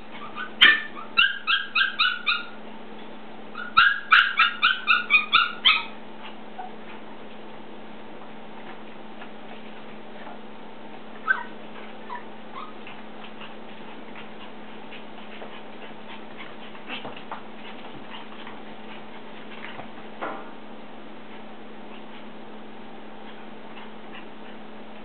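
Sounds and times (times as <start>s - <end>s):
puppy whining: 0.0s - 2.6s, 3.6s - 6.8s, 11.2s - 19.0s
puppy yipping: 0.1s - 2.6s, 3.5s - 6.0s, 11.2s - 12.9s
puppy squeaks: 0.2s - 2.6s, 3.6s - 6.0s, 11.2s - 12.8s.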